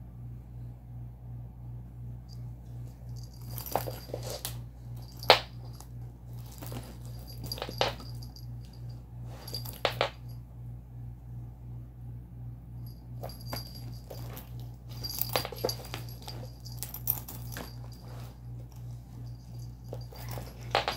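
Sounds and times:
collar bell jingling: 0:03.1 - 0:04.4, 0:06.4 - 0:10.3, 0:12.8 - 0:20.9
scuffs: 0:03.2 - 0:05.4.

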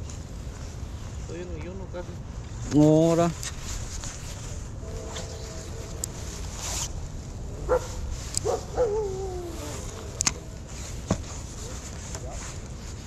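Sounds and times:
dog barking: 0:07.6 - 0:09.3.

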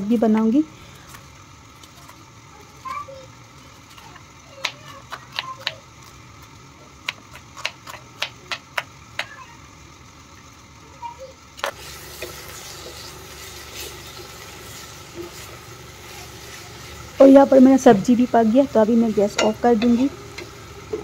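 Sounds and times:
knife chopping on wooden board: 0:07.0 - 0:09.3
food sizzling in a wok: 0:08.9 - 0:21.0.

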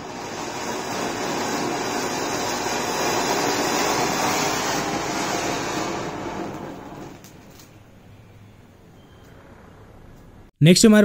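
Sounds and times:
fountain firework hissing: 0:00.0 - 0:07.3.

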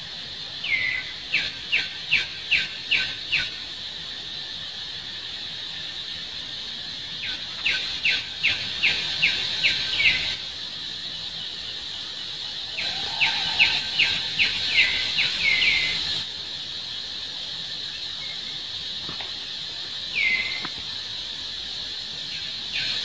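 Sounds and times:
bird singing: 0:00.6 - 0:03.8, 0:07.1 - 0:16.3, 0:17.7 - 0:19.0, 0:19.6 - 0:21.3, 0:21.9 - 0:23.0.

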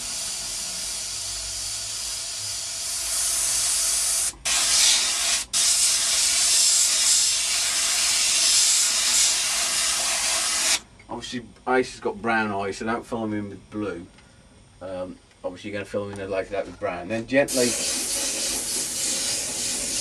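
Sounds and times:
airbrush spraying hiss: 0:00.0 - 0:10.8, 0:17.5 - 0:20.0.

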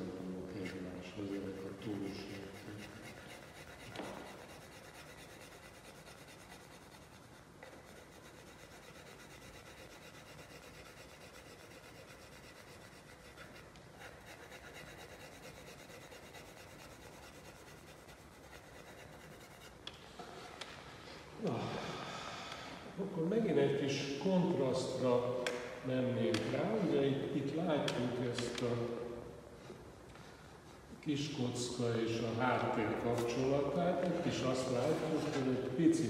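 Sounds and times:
pencil scratching on paper: 0:00.0 - 0:19.8.

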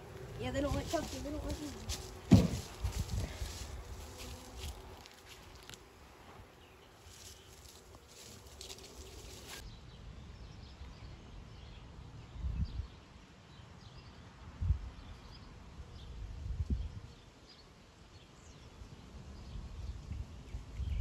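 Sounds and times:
low rumbles: 0:00.0 - 0:06.2.

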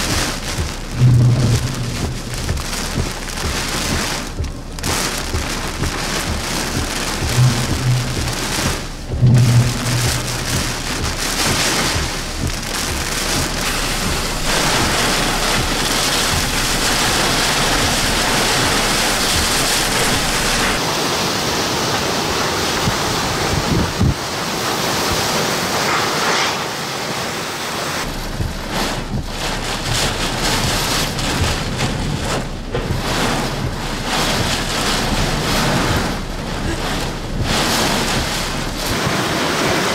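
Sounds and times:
gusting wind: 0:00.0 - 0:39.9
heavy rain on a vehicle: 0:00.0 - 0:39.9
brief low hum: 0:07.2 - 0:11.2.

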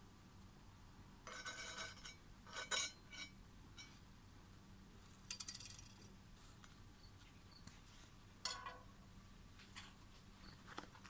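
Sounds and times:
metal scraping and clinking: 0:01.3 - 0:04.0.

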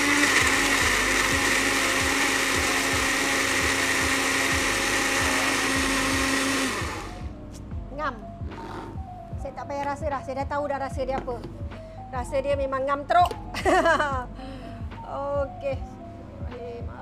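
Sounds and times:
kitchen blender running: 0:00.0 - 0:07.3.

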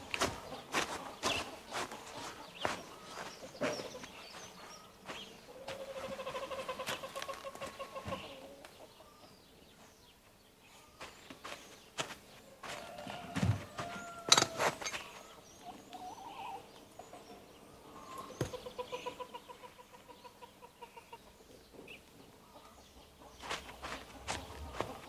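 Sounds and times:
bird calling: 0:10.7 - 0:25.0.

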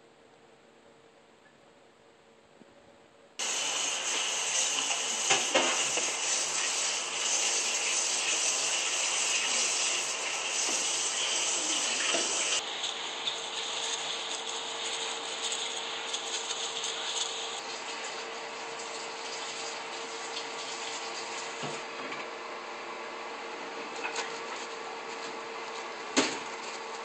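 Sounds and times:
faint hum: 0:00.0 - 0:17.5.

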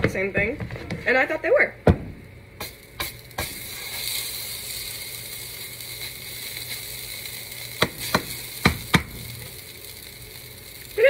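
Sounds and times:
batter sizzling in frying pan: 0:02.6 - 0:11.0.

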